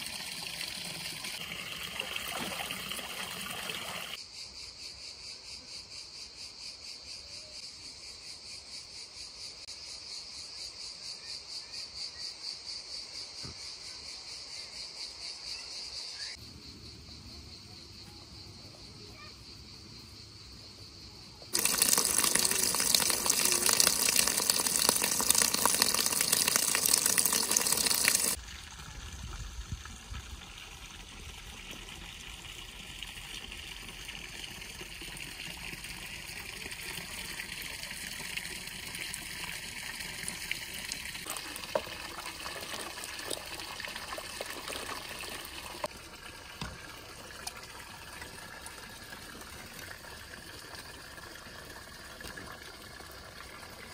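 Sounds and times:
water running into stone trough: 0.0s - 4.2s, 21.5s - 53.9s.

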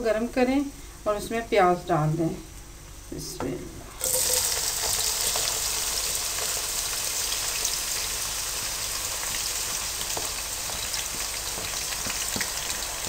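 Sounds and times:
onions sizzling in hot oil: 4.0s - 13.0s
small crackles of frying: 4.0s - 13.0s.

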